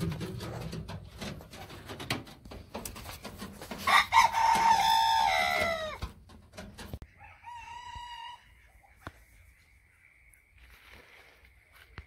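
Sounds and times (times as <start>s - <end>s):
rooster crowing: 3.8s - 6.0s, 7.2s - 8.6s.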